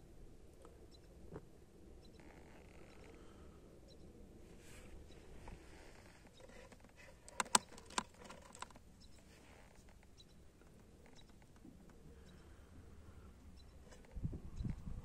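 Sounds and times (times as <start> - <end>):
small can clicks and taps: 7.3 - 8.7.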